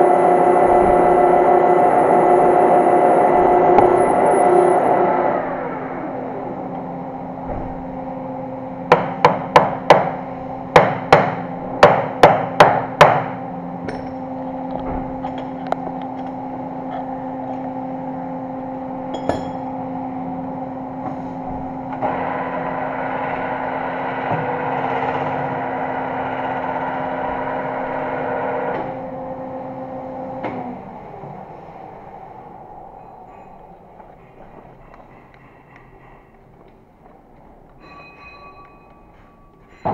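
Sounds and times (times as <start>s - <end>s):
metal lathe humming: 0.0s - 37.0s
hammer striking steel shell: 10.8s - 14.2s, 19.1s - 19.7s.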